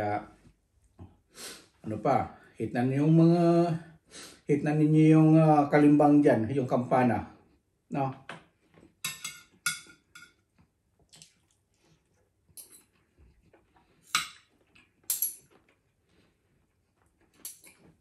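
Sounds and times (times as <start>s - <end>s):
cutlery clinking on ceramic plate: 9.0s - 10.5s, 12.6s - 12.9s, 14.1s - 15.6s, 17.4s - 17.9s.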